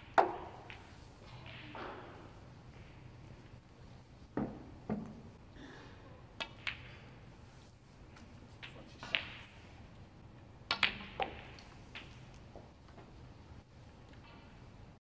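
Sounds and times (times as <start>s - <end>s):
cue tip striking ball: 0.0s - 1.0s
snooker balls clacking: 0.0s - 3.4s, 4.3s - 5.4s, 6.4s - 7.0s, 8.6s - 9.8s, 10.7s - 13.2s.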